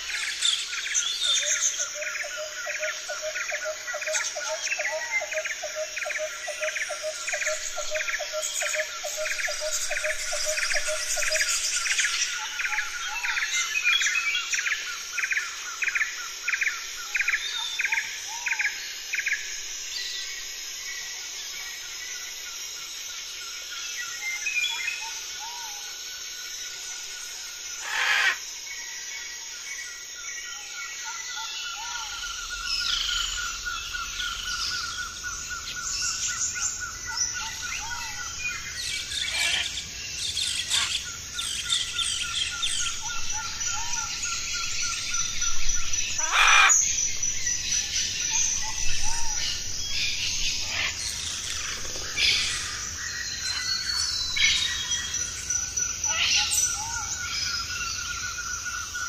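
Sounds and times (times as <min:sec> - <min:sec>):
birds chirping and calling: 0:00.0 - 0:19.4, 0:27.8 - 0:28.4, 0:31.0 - 0:59.0
sharp bird calls: 0:27.8 - 0:28.4, 0:36.4 - 0:46.9.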